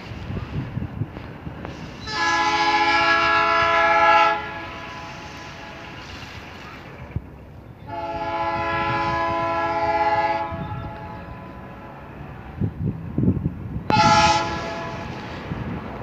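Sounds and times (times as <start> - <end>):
locomotive air horn blasts: 1.8 - 6.0, 7.8 - 12.6, 13.9 - 15.5.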